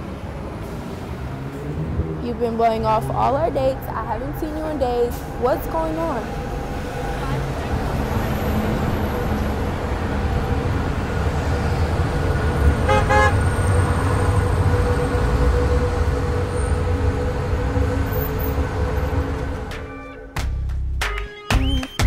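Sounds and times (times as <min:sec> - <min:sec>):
street traffic rumble: 0:00.0 - 0:20.3
car horn toot: 0:12.8 - 0:13.5.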